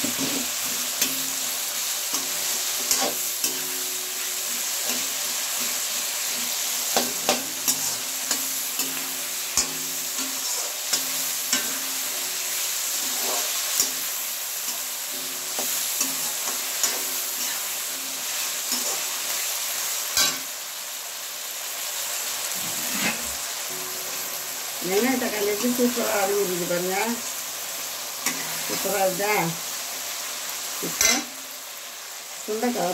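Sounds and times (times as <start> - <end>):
vegetables sizzling in oil: 0.0 - 32.9.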